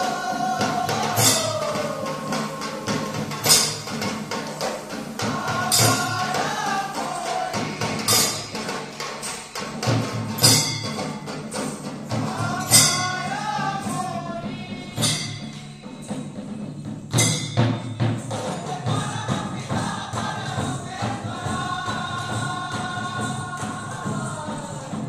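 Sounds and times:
person singing: 0:00.0 - 0:03.7, 0:05.2 - 0:09.3, 0:12.1 - 0:16.2, 0:18.6 - 0:25.0
drums with crashing strikes: 0:00.0 - 0:25.0.

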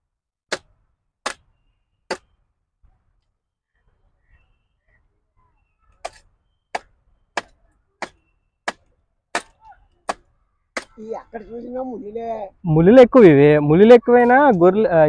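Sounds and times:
machete chopping branches: 0:00.5 - 0:01.5, 0:02.1 - 0:02.4, 0:06.0 - 0:11.0.

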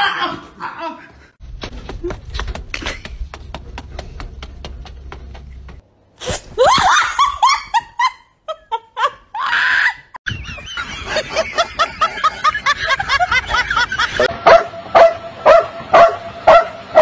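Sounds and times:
person laughing ha ha: 0:00.0 - 0:01.3, 0:06.6 - 0:14.3
people laughing and shrieking: 0:06.6 - 0:08.2, 0:08.9 - 0:14.3.

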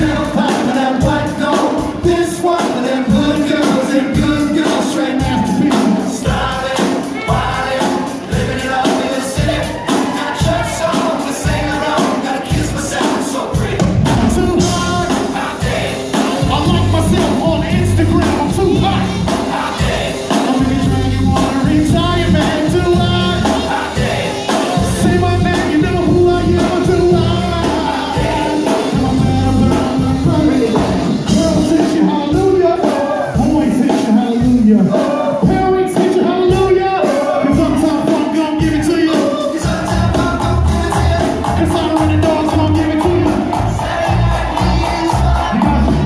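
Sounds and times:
man singing into a microphone: 0:00.0 - 0:06.6, 0:16.4 - 0:19.2, 0:20.3 - 0:23.7, 0:24.8 - 0:43.6, 0:44.7 - 0:46.0
live funk-pop band playing: 0:00.0 - 0:46.0.

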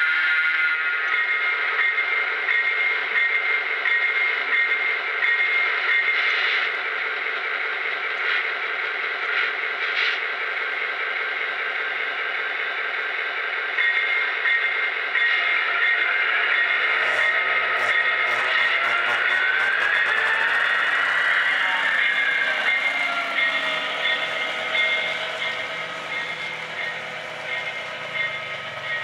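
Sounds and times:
electronic diesel engine sound: 0:07.4 - 0:29.0.

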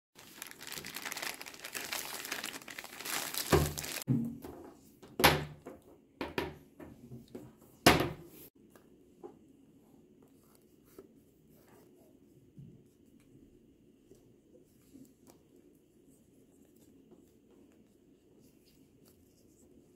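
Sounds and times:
plastic bag crinkling: 0:00.2 - 0:04.1.

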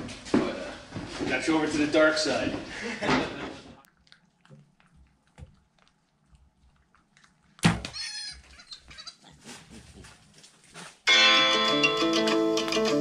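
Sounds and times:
hog squealing: 0:07.8 - 0:09.6.

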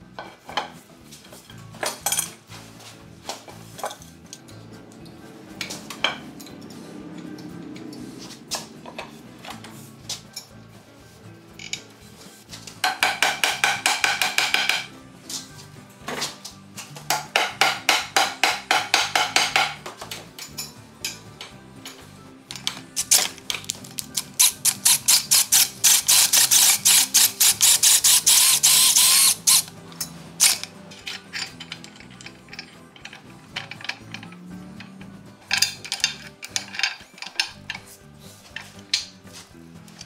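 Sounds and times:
background music: 0:00.0 - 0:40.0
ratchet wrench clicking: 0:23.0 - 0:34.4.

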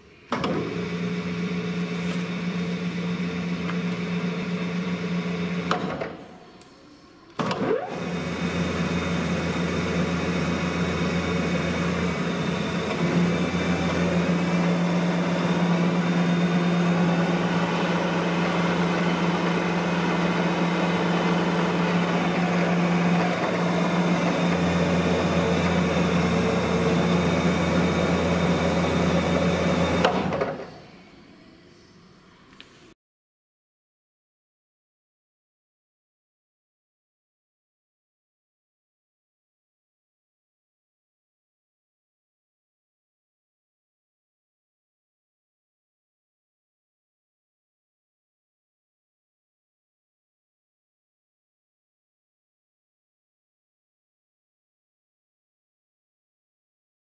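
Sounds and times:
milling machine motor hum: 0:07.4 - 0:30.6.

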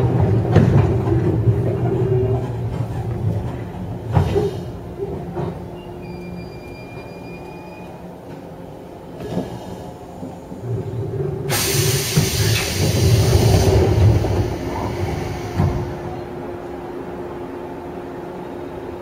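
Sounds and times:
train low rumble: 0:00.0 - 0:19.0
train wheels squealing: 0:05.7 - 0:08.0
compressed air hiss: 0:11.5 - 0:16.0.

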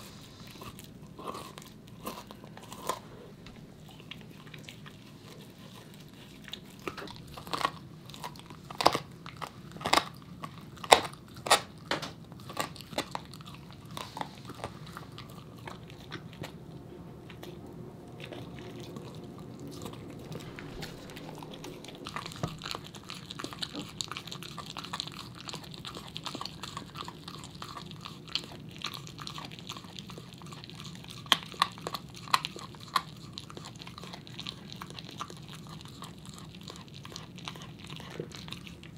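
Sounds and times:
dog crunching bone: 0:00.0 - 0:38.9.

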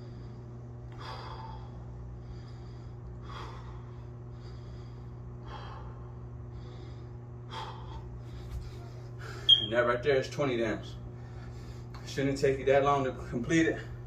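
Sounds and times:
man breathing hard: 0:00.0 - 0:09.5, 0:11.1 - 0:12.0
low steady hum: 0:00.0 - 0:14.0.

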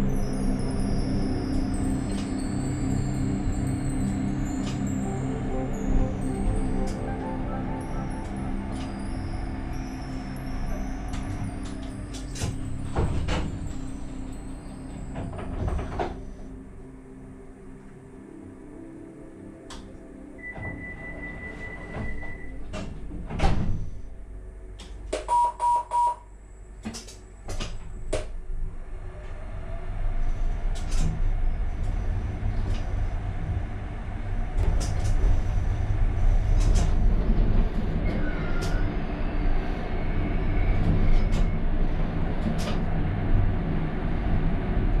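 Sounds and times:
tram running rumble: 0:00.0 - 0:25.2, 0:26.5 - 0:45.0
brief squeal: 0:20.4 - 0:22.6
short warning beeps: 0:25.3 - 0:26.2.

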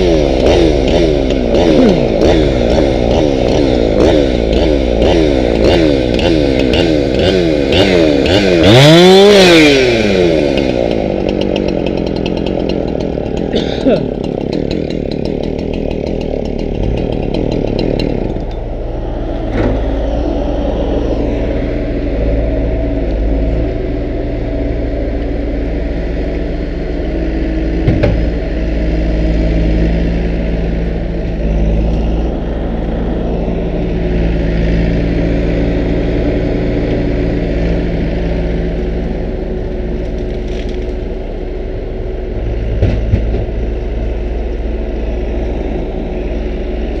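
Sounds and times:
diesel engine running: 0:00.0 - 0:47.0.

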